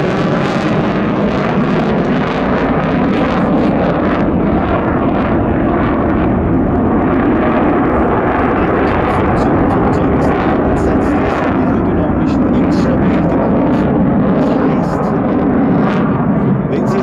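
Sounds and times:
jet engines in afterburner: 0.0 - 17.0.

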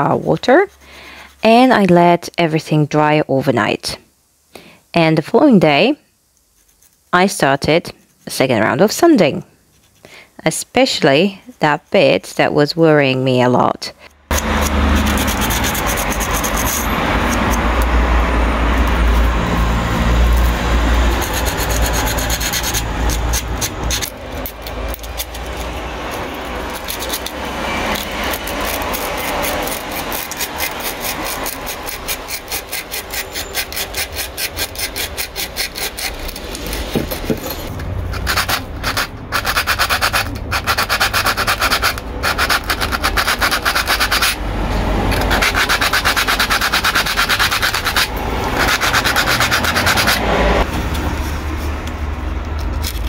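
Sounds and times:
sandpaper rubbing on wood: 14.3 - 18.0, 18.6 - 44.4, 45.0 - 51.8.

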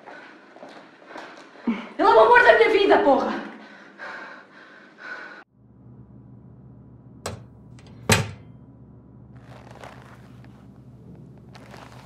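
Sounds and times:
low steady hum: 5.5 - 12.0
soft rustling: 9.4 - 12.0.

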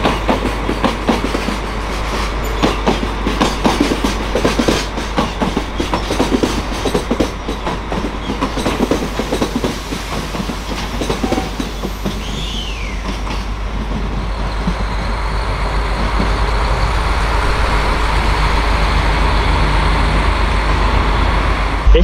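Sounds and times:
train wheels clacking over rail joints: 0.0 - 17.1
steady train hum: 0.0 - 22.0
short falling squeal: 11.3 - 13.0.

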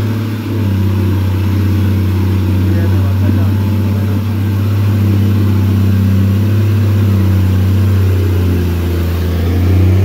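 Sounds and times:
diesel truck engine pulling hard: 0.0 - 10.0.

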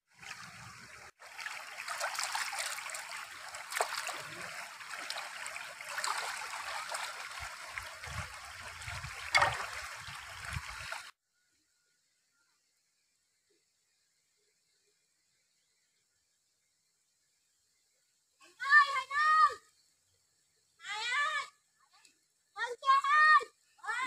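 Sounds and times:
stream water trickling over stones: 0.1 - 11.1
hands splashing in water: 1.2 - 8.3, 8.9 - 10.7.

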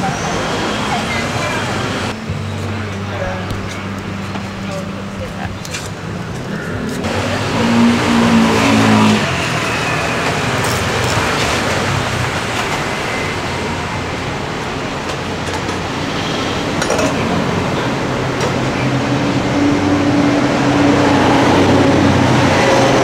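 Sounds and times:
vehicle engine running: 0.0 - 15.8
street traffic noise: 0.0 - 23.0.

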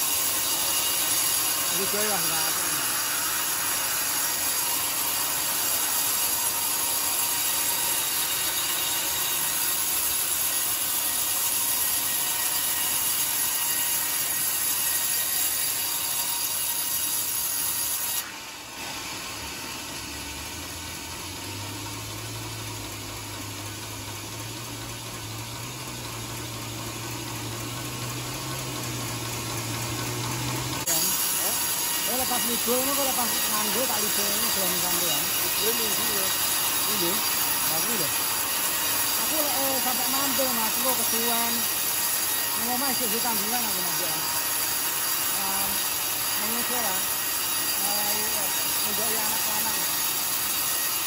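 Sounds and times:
band saw cutting log: 0.0 - 51.0.

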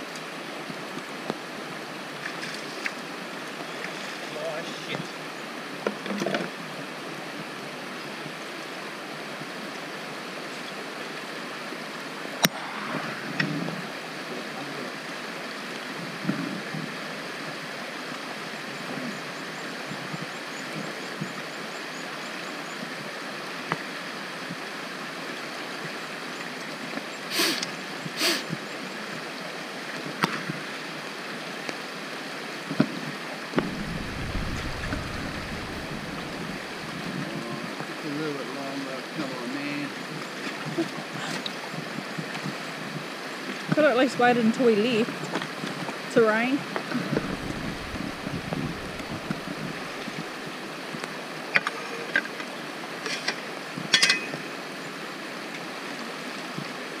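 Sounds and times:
creek water over rocks: 0.0 - 57.0
low rumble: 12.3 - 15.4, 33.6 - 37.4, 47.0 - 50.4.

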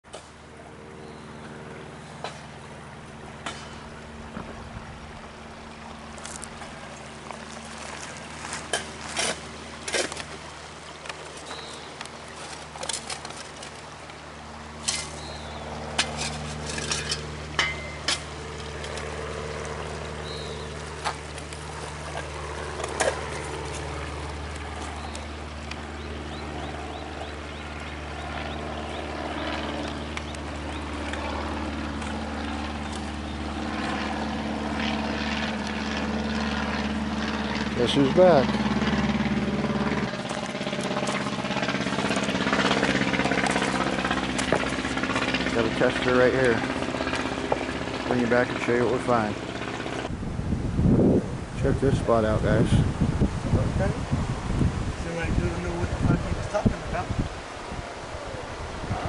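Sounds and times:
engine drone: 0.0 - 59.0
water trickling over stones: 1.9 - 50.1.

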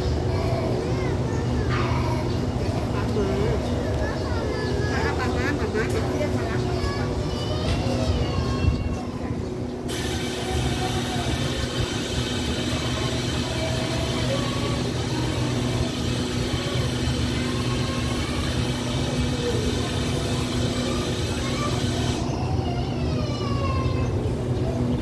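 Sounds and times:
diesel train engines humming: 0.0 - 25.0.

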